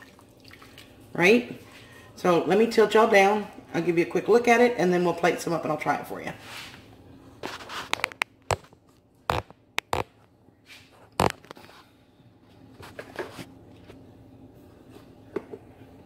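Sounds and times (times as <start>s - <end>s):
sharp knocks and taps: 9.3s - 10.1s.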